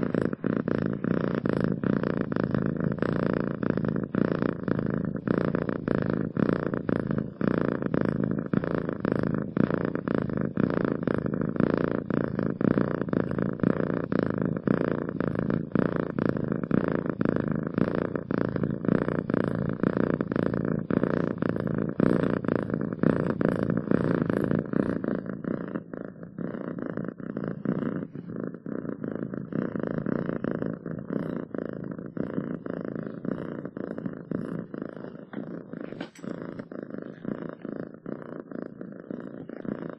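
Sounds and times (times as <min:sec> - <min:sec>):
cat purring: 0:00.0 - 0:39.9.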